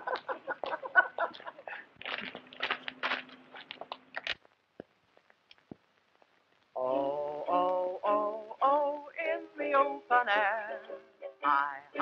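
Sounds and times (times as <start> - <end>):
footsteps on gravel: 2.0 - 4.0.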